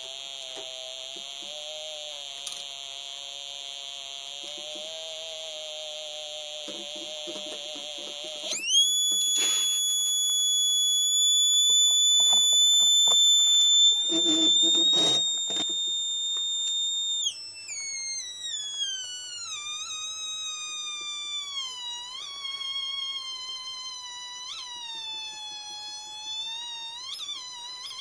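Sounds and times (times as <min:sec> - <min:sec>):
theremin electronic tone: 0:07.4 - 0:28.0.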